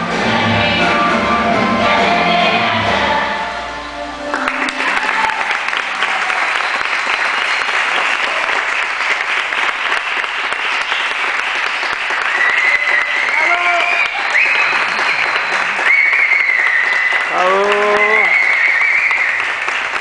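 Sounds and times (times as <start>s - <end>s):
music: 0.0s - 5.8s
audience applause: 4.2s - 20.0s.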